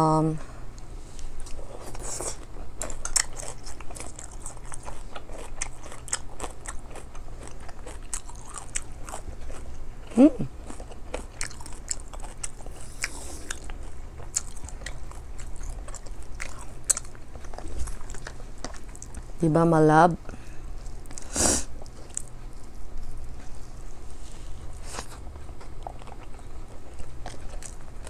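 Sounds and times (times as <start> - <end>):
chewing and mouth clicks: 1.4 - 19.3, 20.8 - 23.7, 24.8 - 28.0
person humming: 10.1 - 10.5.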